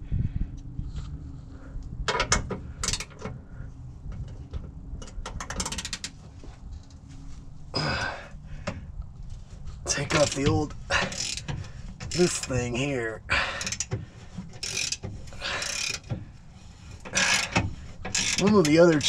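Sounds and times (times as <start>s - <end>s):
ratchet wrench clicking: 5.5s - 6.1s, 10.1s - 12.5s, 13.5s - 13.9s, 14.6s - 16.1s, 17.1s - 19.0s.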